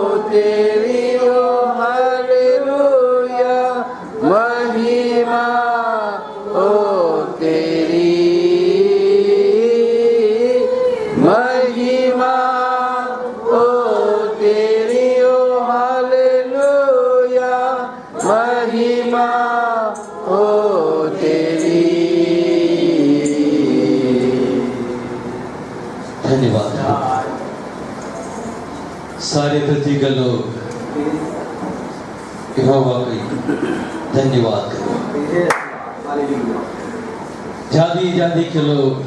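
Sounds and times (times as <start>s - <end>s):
voices singing a worship chant: 0.0s - 28.0s.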